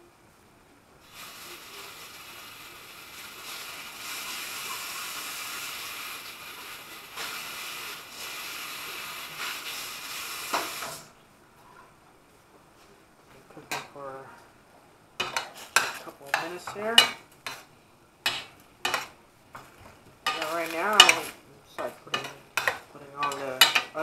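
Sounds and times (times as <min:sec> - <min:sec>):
pork sizzling in a frying pan: 0:01.0 - 0:11.1, 0:15.2 - 0:24.0.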